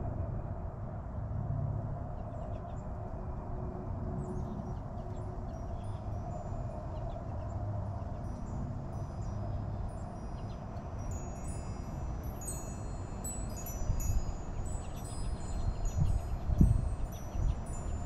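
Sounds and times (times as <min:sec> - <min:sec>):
wind chimes ringing: 0:08.2 - 0:18.0.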